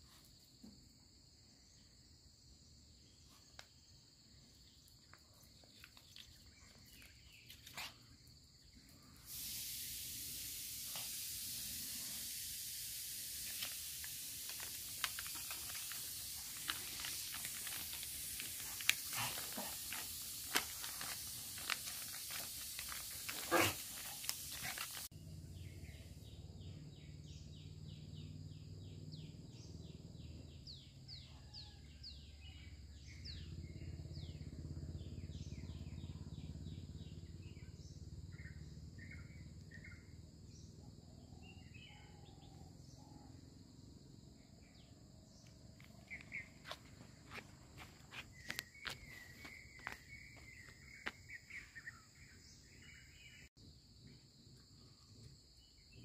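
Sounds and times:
dog claws on stone floor: 5.0 - 8.1
steady hiss: 8.9 - 25.1
birds chirping: 45.3 - 53.5.

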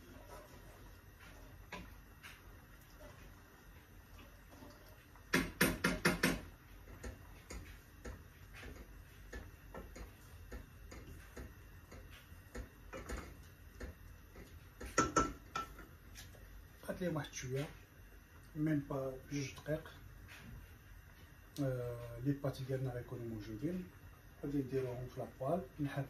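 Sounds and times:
light stirring clicks: 0.1 - 18.6
wooden spoon knocking cookware: 5.3 - 14.0, 14.8 - 15.9.

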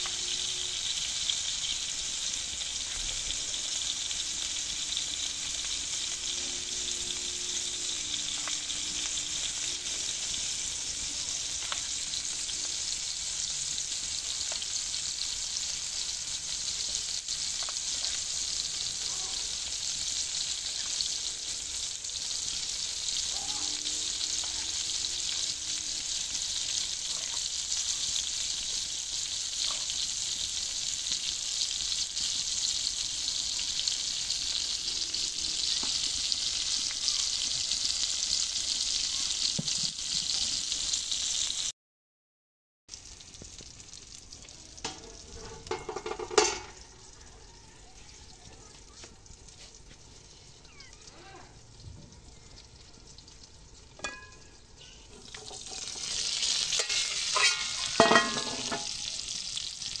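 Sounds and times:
tomato slices sizzling in oil: 0.0 - 41.7, 42.9 - 60.0
metal lid clank: 44.8 - 46.8, 54.0 - 54.5, 56.7 - 59.0.

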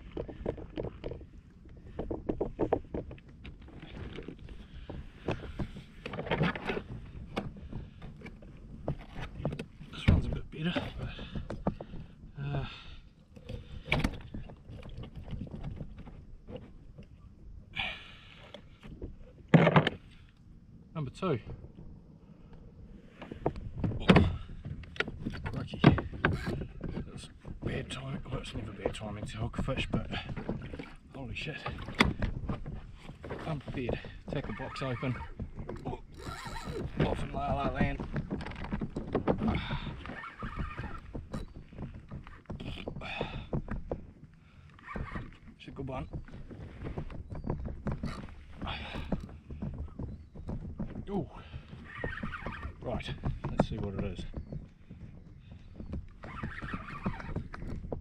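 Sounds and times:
knocks and rustles on kayak: 0.0 - 17.7, 18.4 - 58.0
reel rasping: 26.2 - 26.7, 33.9 - 37.4, 39.6 - 42.9, 47.9 - 49.3, 56.2 - 57.8.

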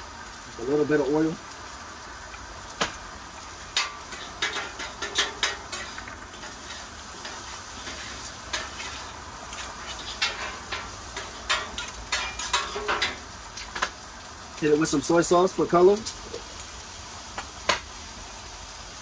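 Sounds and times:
shrimp sizzling on griddle: 0.0 - 19.0
spatula scraping griddle: 3.7 - 13.9.

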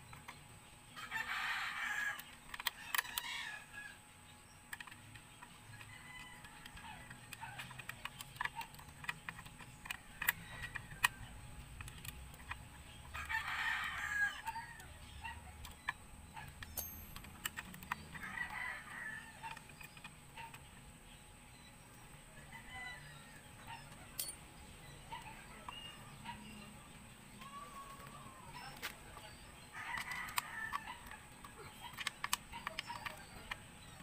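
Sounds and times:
rooster crowing: 13.1 - 14.9, 18.1 - 19.6
hand tools clicking: 15.6 - 18.1, 24.2 - 24.4.

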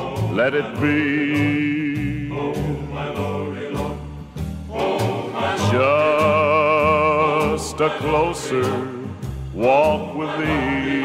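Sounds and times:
choir singing with vibrato: 0.0 - 11.0
low bass notes: 5.4 - 11.0.

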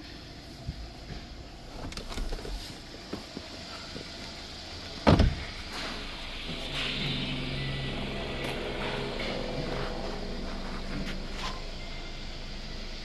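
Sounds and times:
car engine idling: 1.1 - 13.0
loud thump: 5.0 - 5.9.

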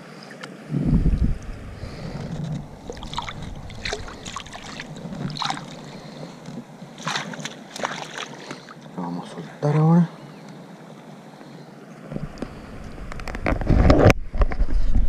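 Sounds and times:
low wash of water: 0.6 - 9.0
wind rumble on microphone: 0.7 - 6.7, 12.1 - 15.0
water splashing: 0.8 - 9.0.

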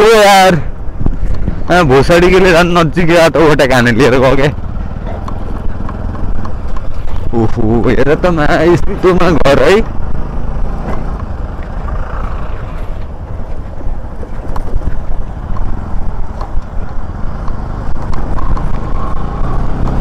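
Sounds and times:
motorcycle engine rumble: 0.0 - 20.0
road noise on gravel: 0.0 - 20.0.

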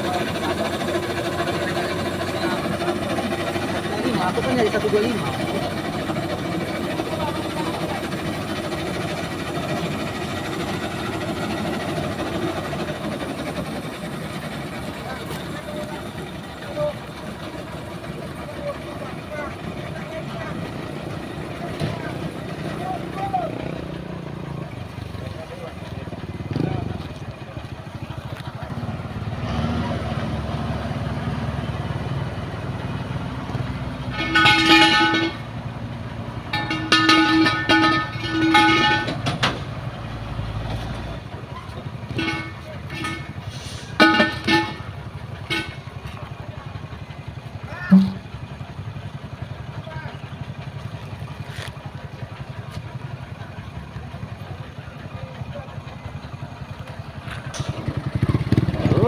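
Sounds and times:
truck engine idling: 0.0 - 59.0
vehicle horn: 34.0 - 35.4, 36.6 - 39.2, 42.1 - 43.3, 45.5 - 45.8.

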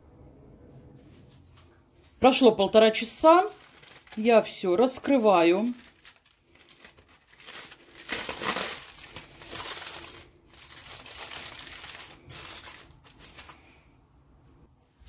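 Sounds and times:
aluminium foil crinkling: 2.9 - 13.8.

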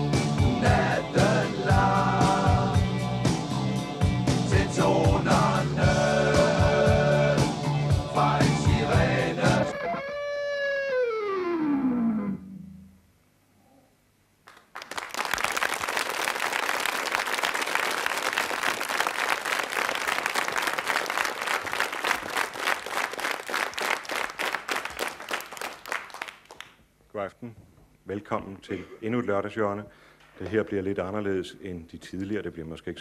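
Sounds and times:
electric guitar note sliding down: 9.6 - 13.0
applause: 14.4 - 26.8.

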